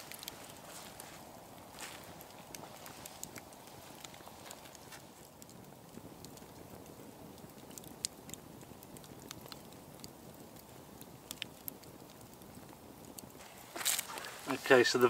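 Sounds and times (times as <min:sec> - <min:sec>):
campfire crackling and popping: 0:00.0 - 0:15.0
low rushing hiss: 0:13.3 - 0:15.0.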